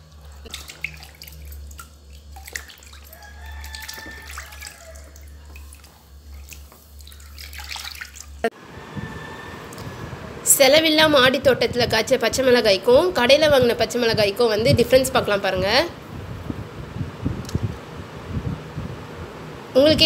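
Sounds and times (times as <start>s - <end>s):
hands rubbing vegetables in water: 0.0s - 8.4s
small splashes and drips: 0.0s - 8.4s
steady low hum: 0.0s - 20.0s.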